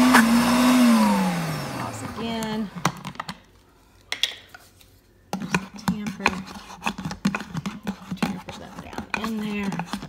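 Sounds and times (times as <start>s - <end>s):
blender motor humming: 0.0s - 2.9s.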